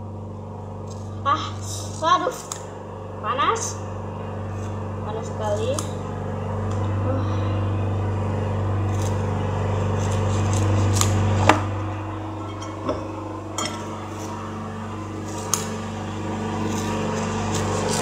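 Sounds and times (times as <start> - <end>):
low electrical hum: 0.0 - 18.0
scissors snipping toasted bread: 9.9 - 11.5, 16.6 - 18.0.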